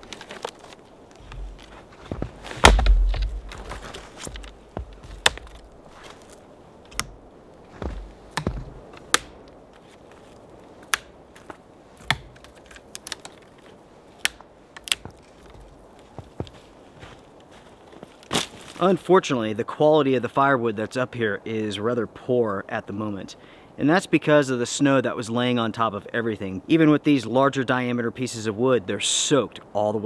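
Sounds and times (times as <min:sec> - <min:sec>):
twigs snapping: 0:00.0 - 0:07.2, 0:07.8 - 0:16.6, 0:18.0 - 0:18.8
low thump: 0:02.6 - 0:03.6.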